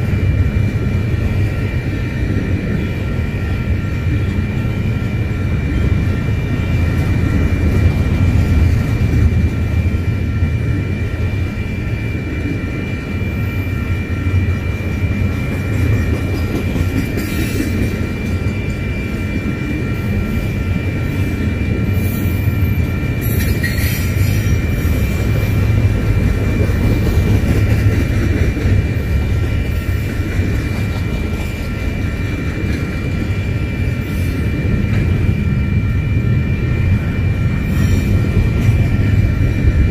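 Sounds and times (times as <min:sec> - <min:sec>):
train wheels on track: 0:00.0 - 0:39.9.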